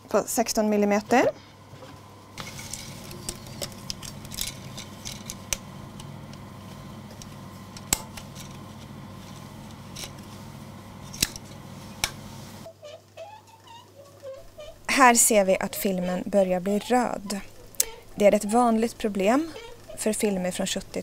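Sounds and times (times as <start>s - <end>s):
low hum: 1.3s - 12.7s
clicks and snaps of film parts: 2.7s - 6.4s.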